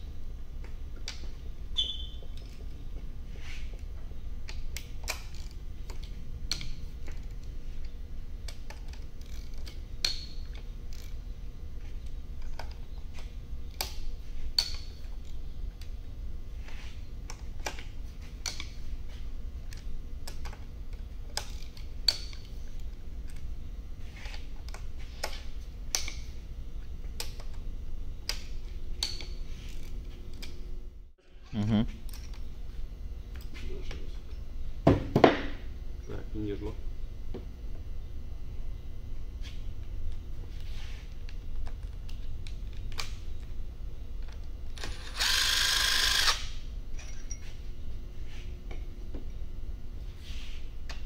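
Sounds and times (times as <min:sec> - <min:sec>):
ratchet wrench clicking: 0:44.8 - 0:46.6.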